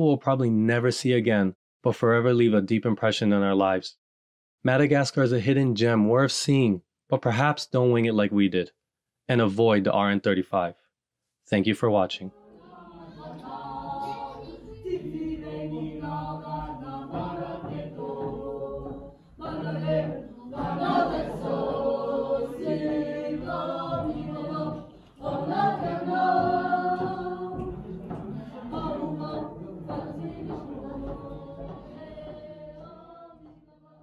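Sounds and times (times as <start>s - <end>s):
choir singing held notes: 12.3s - 33.6s.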